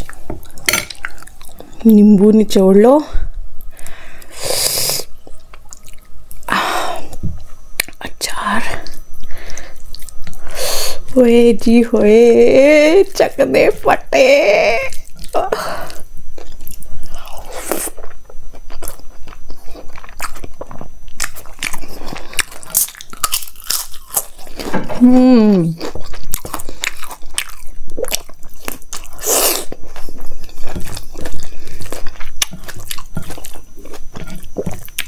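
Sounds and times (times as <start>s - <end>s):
crunchy bites and chewing: 15.0s - 25.0s, 25.6s - 35.0s
person humming mmm: 24.8s - 26.0s.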